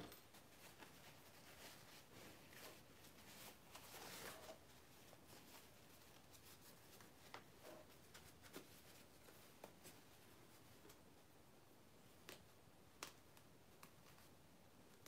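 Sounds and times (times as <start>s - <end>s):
fabric rustling: 0.0s - 11.0s.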